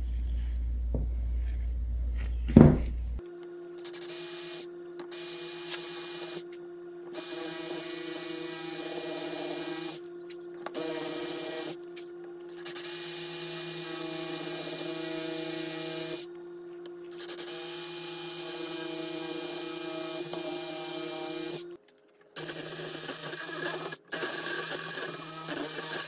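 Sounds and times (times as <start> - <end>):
electric drill boring into wood: 3.8 - 6.5, 7.1 - 10.0, 10.6 - 11.8, 12.6 - 16.3, 17.2 - 21.7, 22.4 - 26.0.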